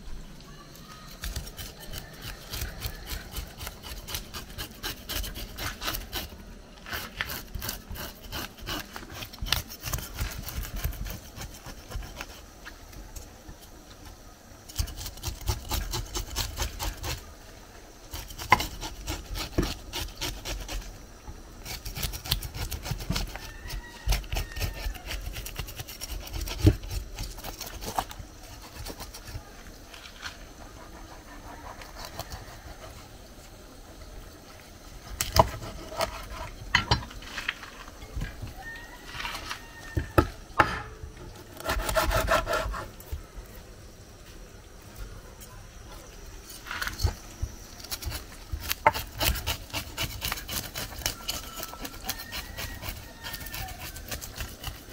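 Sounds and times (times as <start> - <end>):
knife scraping fish scales: 0.8 - 13.3, 14.6 - 17.3, 18.1 - 20.9, 21.6 - 33.0, 35.1 - 37.6, 41.4 - 43.2, 46.4 - 54.9.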